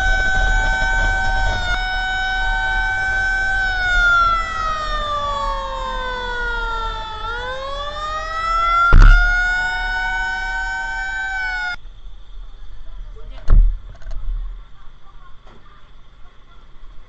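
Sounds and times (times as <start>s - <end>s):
fire truck siren wailing: 0.0s - 11.8s
truck rumbling: 0.0s - 17.0s
loud thump: 8.9s - 9.7s.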